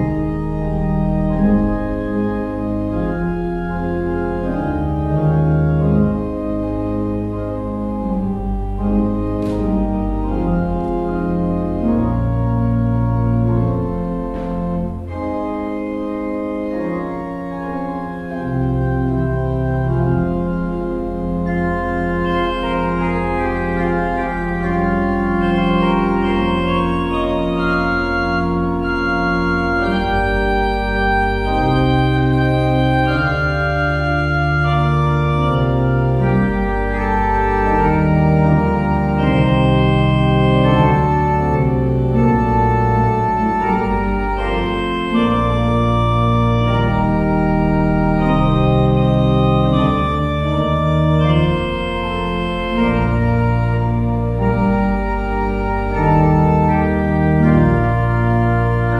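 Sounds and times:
church organ playing chords: 0.0 - 58.9.

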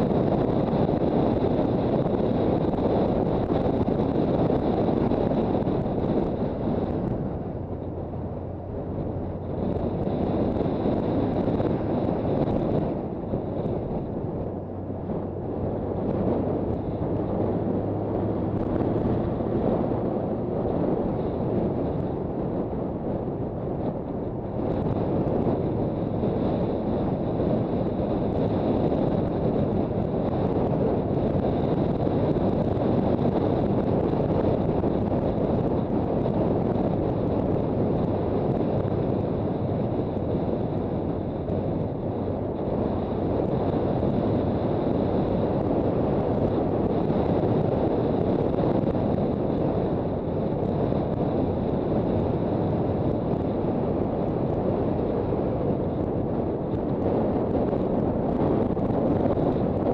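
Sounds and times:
wind rush on microphone: 0.0 - 59.9
motorcycle engine running: 0.1 - 22.0.

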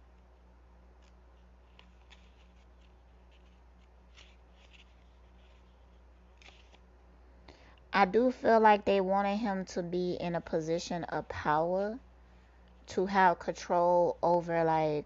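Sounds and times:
low steady hum: 0.0 - 15.0
paper rustling and ticking: 1.0 - 6.8.

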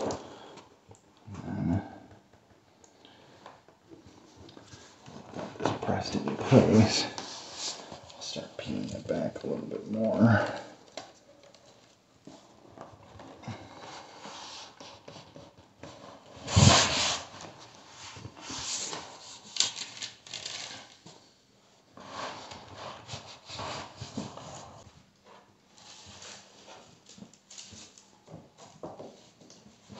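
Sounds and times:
plastic rustling and rubbing: 3.3 - 21.3.

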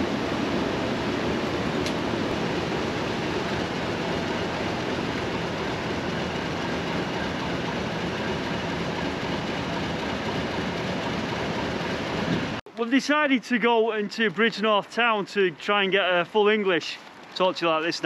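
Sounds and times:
diesel locomotive engine idling: 0.0 - 12.6.

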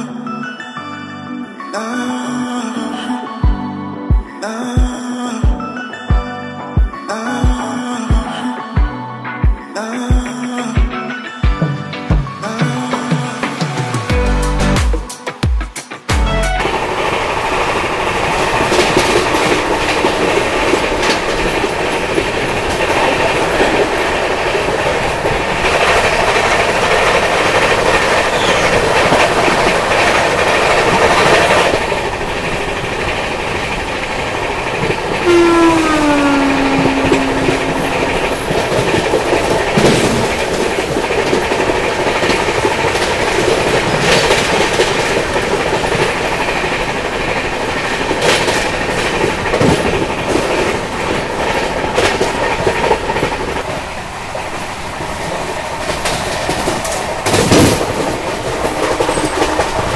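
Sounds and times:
train rumbling at speed: 16.2 - 59.9
wheels clacking over rail joints: 16.6 - 59.9
train horn: 35.1 - 40.3.

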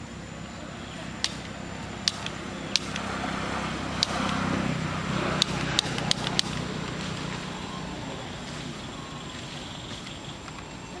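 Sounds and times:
vehicle engine humming: 0.0 - 11.0
sharp short clicks: 1.2 - 3.4, 4.0 - 4.6, 5.4 - 6.7.

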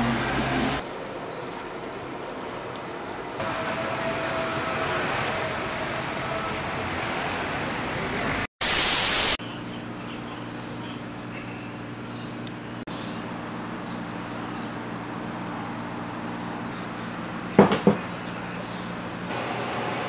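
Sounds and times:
street hum: 0.0 - 20.0
loud burst of hiss: 8.6 - 9.4.

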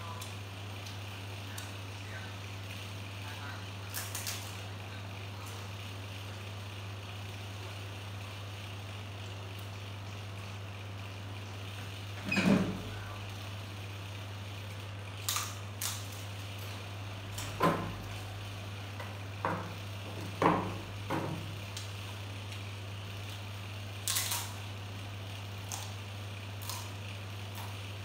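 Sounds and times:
steady low hum: 0.0 - 28.0
plastic chair knocking on tiles: 19.4 - 21.5.

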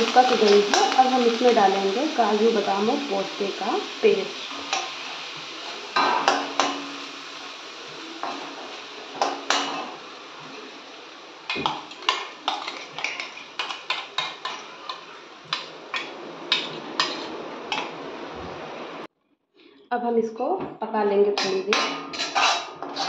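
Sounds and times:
onion paste sizzling in pan: 0.0 - 19.1, 21.4 - 23.0
steel spoon scraping steel jar: 22.1 - 23.0.

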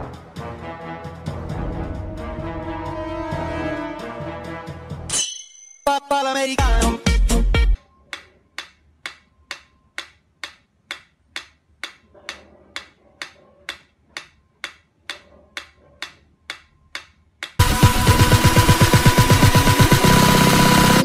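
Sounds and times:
music: 0.0 - 5.1, 5.9 - 8.2, 17.0 - 21.0
metronome ticking: 8.1 - 12.0, 12.8 - 17.7.

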